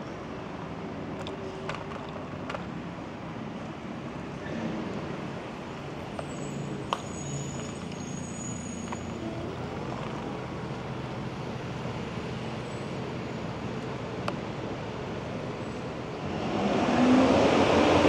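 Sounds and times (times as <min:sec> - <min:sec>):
city street traffic: 0:00.0 - 0:18.0
faint high squeal: 0:06.3 - 0:09.5.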